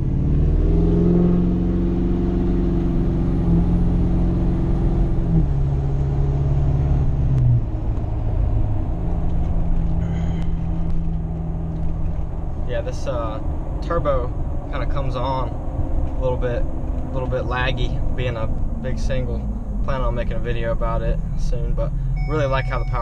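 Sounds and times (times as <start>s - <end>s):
diesel engine accelerating: 0.0s - 23.0s
turbo whistle: 22.2s - 23.0s.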